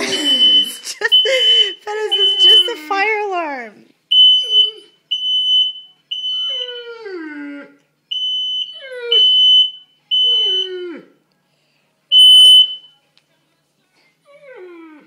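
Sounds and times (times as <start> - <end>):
fire alarm beeping: 0.1 - 2.9, 4.1 - 6.9, 8.1 - 10.8, 12.1 - 12.9
dog whining: 2.0 - 3.0, 4.4 - 5.0.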